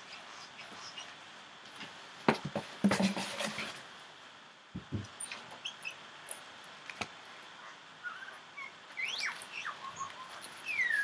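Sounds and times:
books knocking and rustling: 0:02.2 - 0:03.8.

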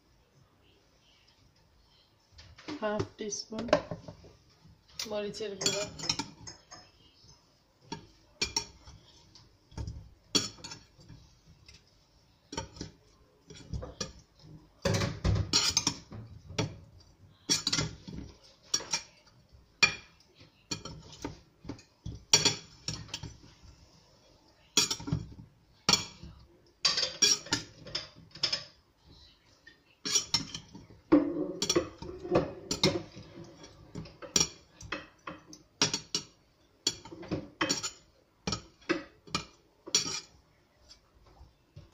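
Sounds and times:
metal utensils scraping ceramic bowl: 0:05.0 - 0:06.9, 0:14.9 - 0:16.8, 0:25.9 - 0:28.7, 0:30.0 - 0:41.0.

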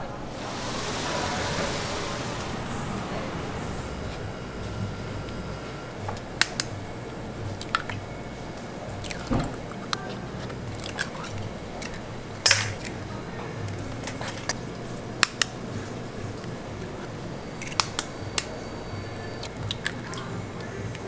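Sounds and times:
low hum: 0:00.0 - 0:19.9
eggs cracking against metal bowl: 0:08.9 - 0:13.0.

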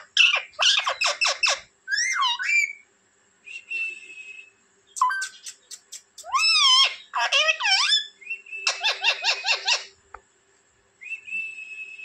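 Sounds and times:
parakeet squawking: 0:00.0 - 0:02.8, 0:05.0 - 0:09.9
parakeet warbling call: 0:00.2 - 0:02.8, 0:06.2 - 0:09.9
clicks and chirps: 0:05.0 - 0:06.4.

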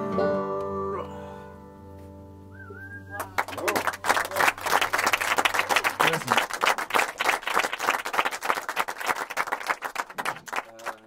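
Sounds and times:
audience applauding: 0:03.1 - 0:11.0.

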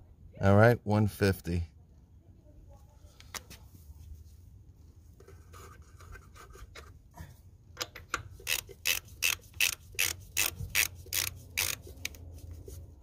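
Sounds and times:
torque wrench clicking: 0:07.8 - 0:12.2.

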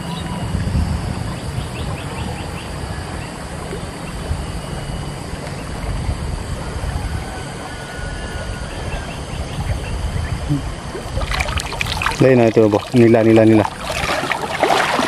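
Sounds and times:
wind rumble on microphone: 0:00.0 - 0:15.0
water sloshing and dripping: 0:10.9 - 0:15.0.

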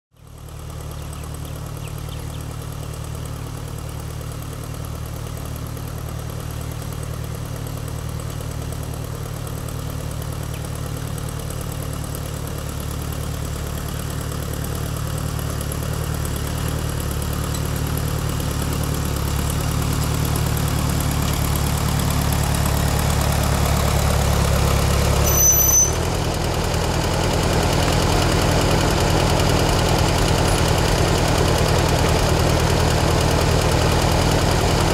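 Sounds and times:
tractor engine running: 0:00.2 - 0:34.9
brief high squeak: 0:25.2 - 0:26.1.

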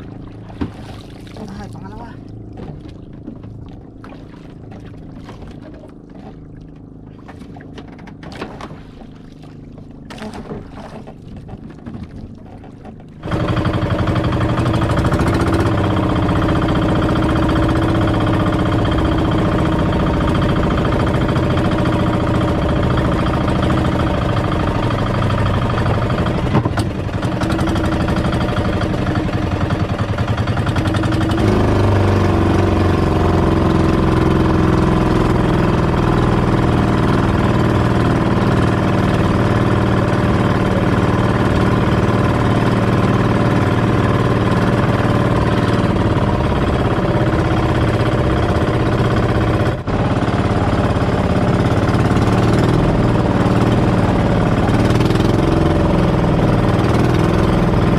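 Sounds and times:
boat engine running: 0:00.0 - 0:57.9
low hum: 0:00.0 - 0:57.9.

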